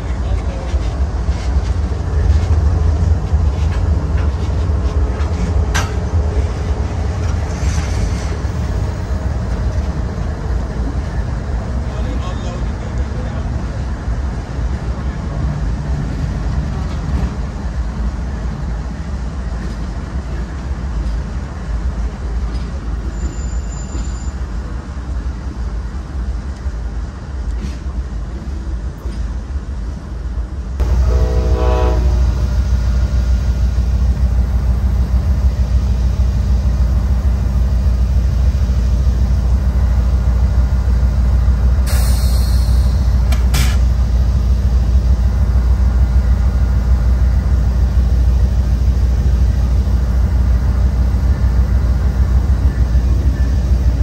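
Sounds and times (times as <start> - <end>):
diesel locomotives idling: 0.0 - 54.0
train horn: 30.8 - 32.4.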